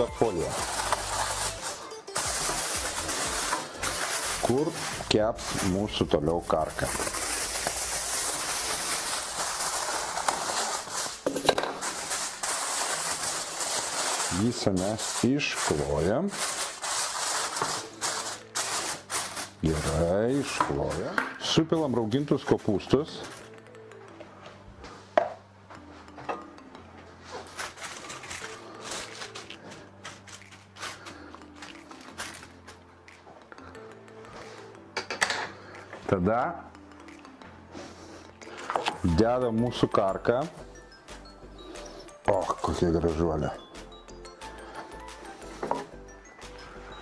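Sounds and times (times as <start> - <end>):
aluminium foil crinkling: 0.0 - 23.7, 27.2 - 32.8.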